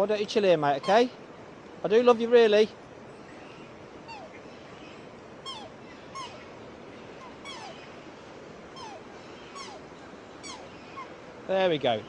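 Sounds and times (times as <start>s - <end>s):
brook water rushing: 0.0s - 12.0s
whistled bird calls: 3.5s - 6.5s, 7.1s - 8.0s, 8.7s - 11.1s.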